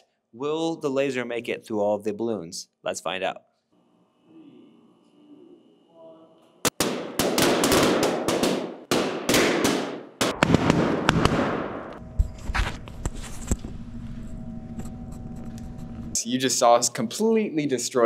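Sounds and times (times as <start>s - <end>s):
steady hum: 3.8s - 7.2s, 11.0s - 17.2s
balloons popping: 6.7s - 11.5s.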